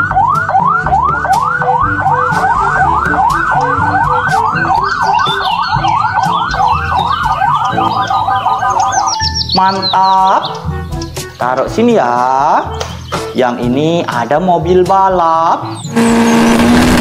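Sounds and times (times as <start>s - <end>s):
police siren yelp: 0.0s - 10.9s, 15.8s - 17.0s.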